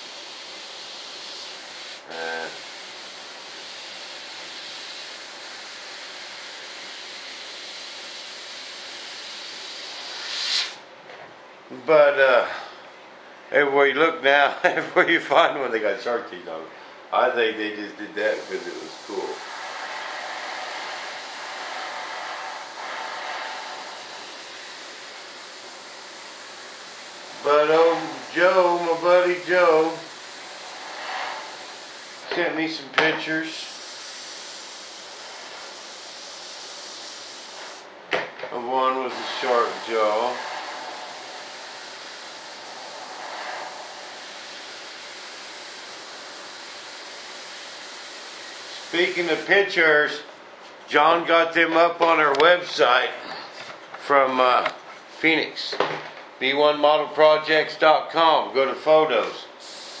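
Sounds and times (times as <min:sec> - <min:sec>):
rushing air hiss: 0:00.0 - 0:10.8, 0:18.1 - 0:37.9, 0:38.8 - 0:50.1, 0:59.5 - 1:00.0.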